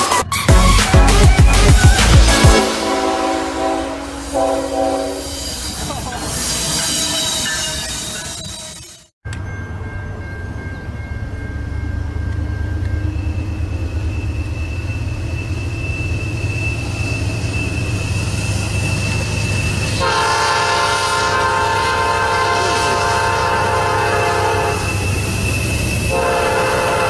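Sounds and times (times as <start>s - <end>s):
diesel locomotive engine rumble: 0.0s - 27.0s
locomotive air horn: 2.3s - 5.5s, 20.0s - 25.0s, 26.1s - 27.0s.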